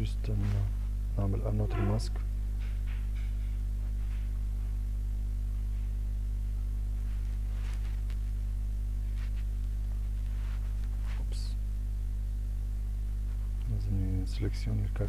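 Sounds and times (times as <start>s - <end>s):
electrical mains hum: 0.0s - 15.0s.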